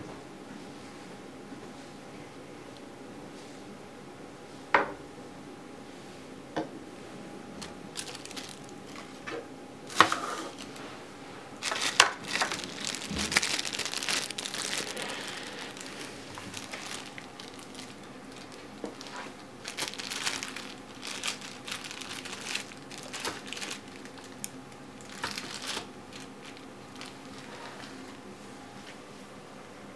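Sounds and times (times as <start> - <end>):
plastic bags crinkling: 7.6 - 9.2, 9.8 - 11.0, 11.6 - 28.2.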